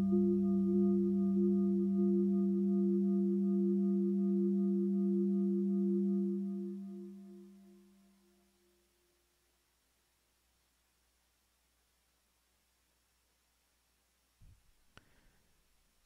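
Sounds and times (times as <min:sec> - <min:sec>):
synthesizer sustained low tone: 0:00.0 - 0:08.4.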